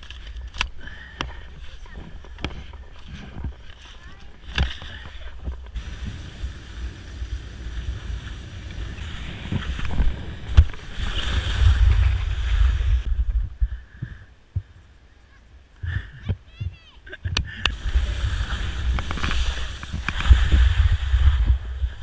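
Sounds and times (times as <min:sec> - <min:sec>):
skis hissing over snow: 0:01.0 - 0:13.1, 0:17.7 - 0:22.0
wind buffeting microphone: 0:04.5 - 0:14.2, 0:17.3 - 0:22.0.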